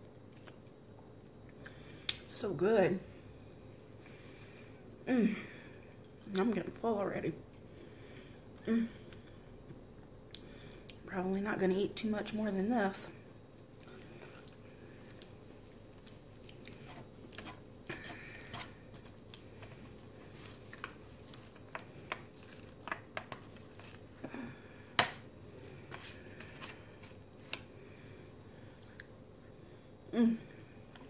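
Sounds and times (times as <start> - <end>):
soft chewing: 0.2 - 2.2, 13.7 - 31.0
cutlery scraping foil tray: 16.8 - 18.8.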